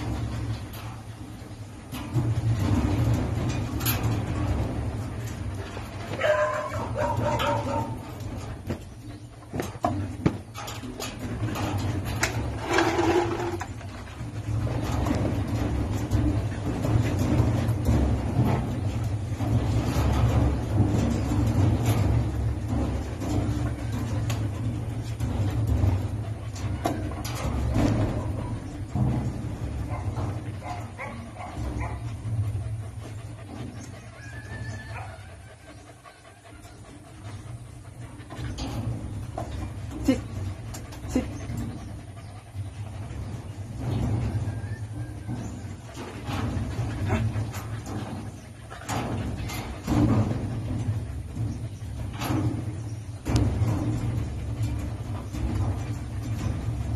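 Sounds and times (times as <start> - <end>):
dog claws clicking on wire cage: 0.0 - 32.3
steady low hum: 0.0 - 56.9.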